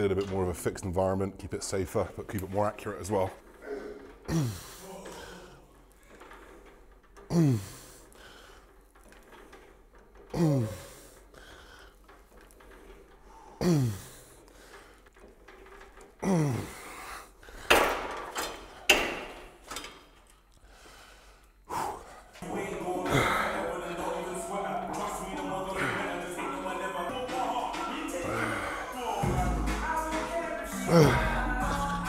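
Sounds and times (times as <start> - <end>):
man grunting with effort: 3.6 - 5.7, 16.2 - 16.8, 30.8 - 31.5.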